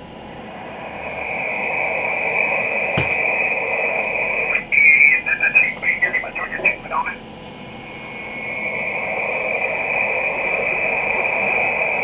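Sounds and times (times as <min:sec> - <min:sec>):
radio receiver static hiss: 0:01.0 - 0:12.0.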